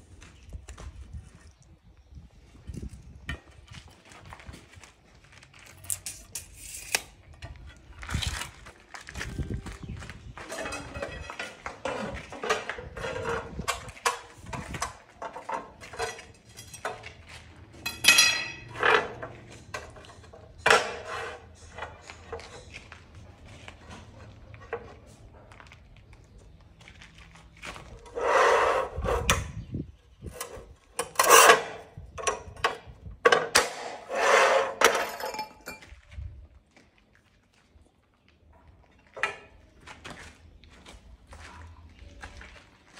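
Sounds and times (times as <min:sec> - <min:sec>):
cutting wheel scraping tile: 0:18.7 - 0:21.9, 0:28.0 - 0:29.6, 0:30.3 - 0:31.9, 0:33.6 - 0:35.2.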